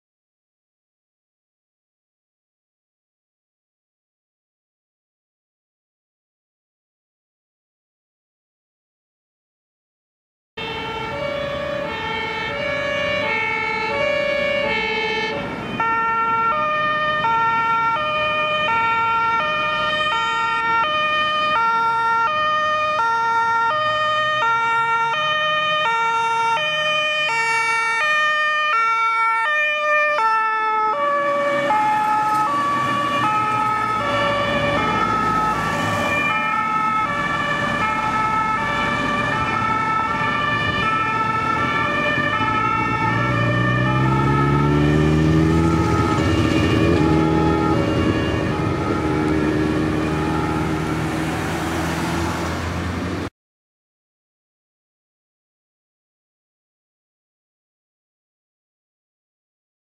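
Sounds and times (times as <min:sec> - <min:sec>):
two-tone emergency sirens: 0:10.6 - 0:52.6
engine and road noise: 0:10.6 - 0:53.3.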